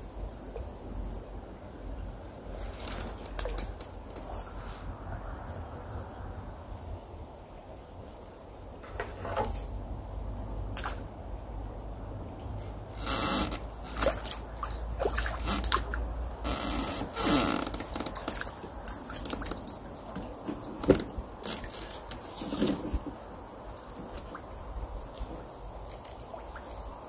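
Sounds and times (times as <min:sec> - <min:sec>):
net pole scrapes and knocks: 0:02.6 - 0:04.9, 0:08.8 - 0:09.8, 0:15.0 - 0:23.2
small splashes and sloshing water: 0:10.7 - 0:11.3, 0:12.4 - 0:27.0.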